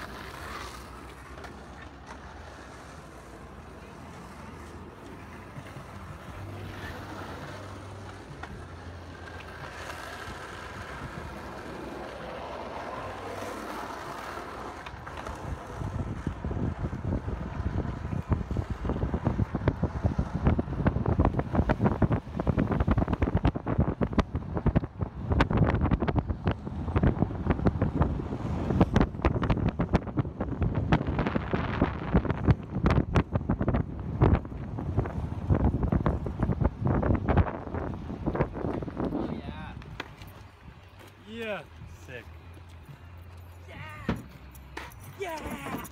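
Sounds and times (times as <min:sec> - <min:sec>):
car road and engine noise: 0:00.0 - 0:45.9
skateboard wheels rolling on asphalt: 0:00.0 - 0:45.9
wind on microphone: 0:15.0 - 0:40.0.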